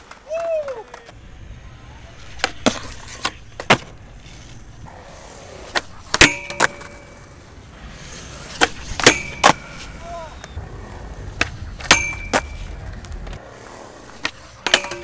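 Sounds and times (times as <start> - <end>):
skateboard wheels rolling: 0.0 - 15.0
skateboard pops and landings: 2.2 - 7.3, 8.3 - 15.0
trucks striking ringing steel rail: 6.1 - 7.2, 11.8 - 12.7.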